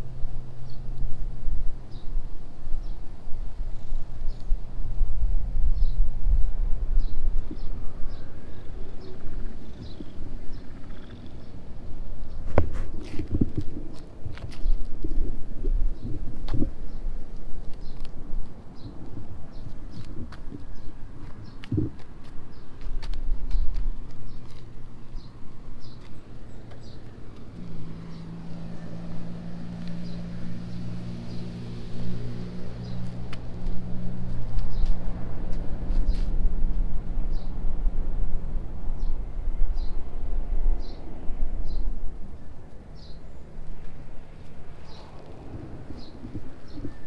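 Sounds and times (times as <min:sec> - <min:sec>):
wind rumble on microphone: 0:00.0 - 0:47.0
light footsteps on path: 0:05.8 - 0:37.6, 0:41.8 - 0:47.0
cat fur rubbing against camera: 0:12.4 - 0:15.4.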